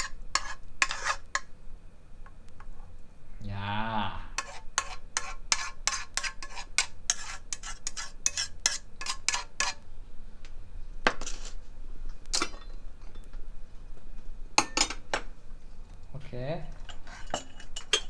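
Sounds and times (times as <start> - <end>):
utensil scraping frying pan: 0.0 - 1.5, 4.4 - 9.8, 11.1 - 11.6, 16.8 - 18.0.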